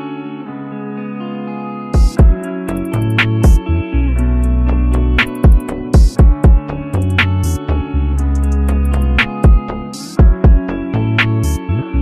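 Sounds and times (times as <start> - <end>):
guitar: 0.0 - 12.0
drum beat: 2.0 - 2.5, 3.2 - 3.6, 5.2 - 7.6, 8.7 - 10.7.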